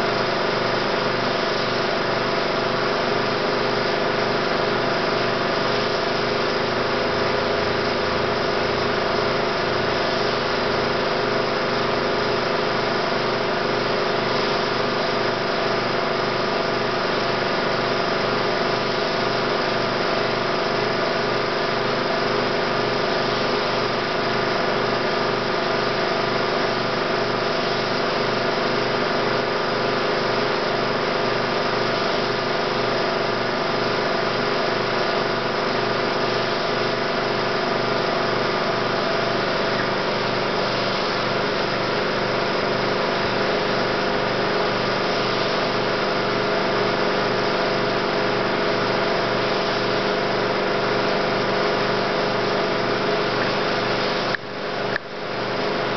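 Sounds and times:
film projector motor whir: 0.0s - 55.9s.

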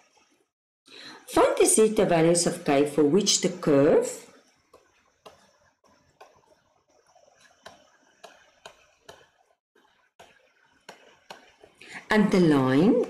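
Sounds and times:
stylus tapping and scratching tablet: 4.3s - 13.0s.

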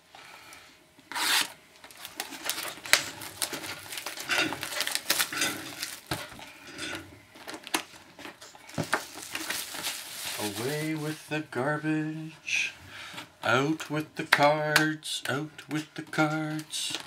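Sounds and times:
plastic wrap tearing and crinkling: 1.1s - 11.2s.

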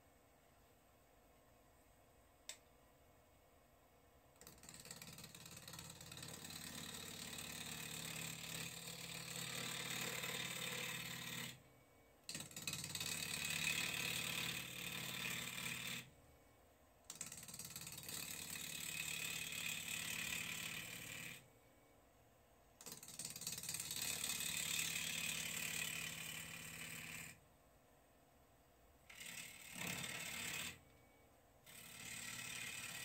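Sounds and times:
lathe tool scraping wood: 6.0s - 11.6s, 31.7s - 33.0s.

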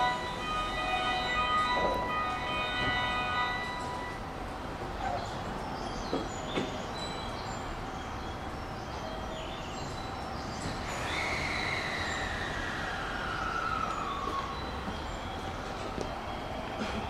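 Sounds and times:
train whine falling in pitch: 0.0s - 4.3s
train low rumble: 0.0s - 17.0s.

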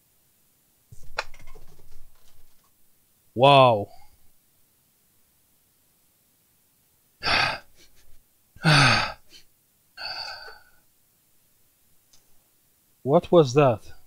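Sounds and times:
man gasping: 7.2s - 8.0s, 8.6s - 10.8s
man sighing: 7.2s - 8.0s, 8.6s - 10.8s.

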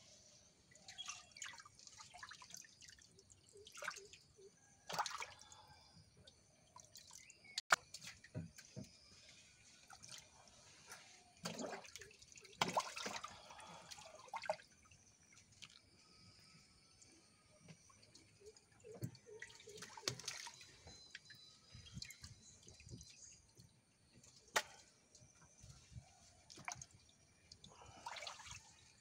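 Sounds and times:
water splashes and drips: 0.7s - 29.0s.

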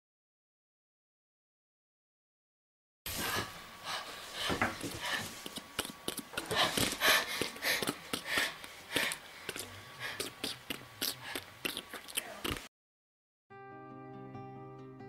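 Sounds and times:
person panting: 3.2s - 11.9s.

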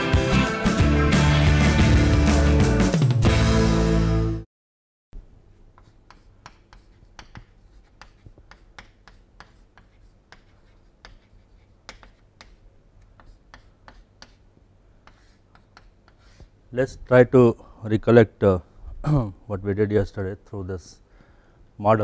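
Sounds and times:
low room hum: 5.2s - 22.0s
chalk tapping and scratching: 5.5s - 16.6s.

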